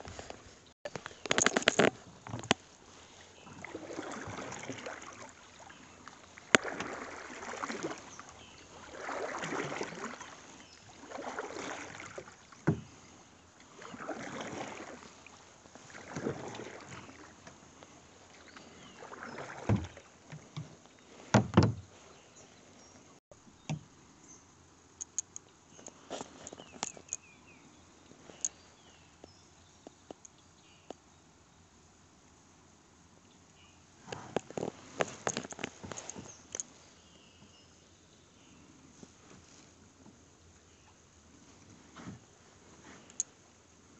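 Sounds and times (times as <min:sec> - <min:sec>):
paddle strokes swishing through water: 0:00.0 - 0:23.2, 0:33.9 - 0:37.6, 0:38.6 - 0:40.3, 0:41.2 - 0:43.9.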